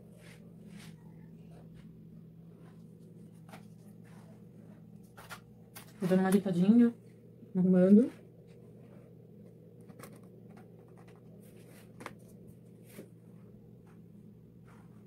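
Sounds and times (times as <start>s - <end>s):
low steady hum: 0.0s - 15.0s
soft scrapes: 0.1s - 1.9s.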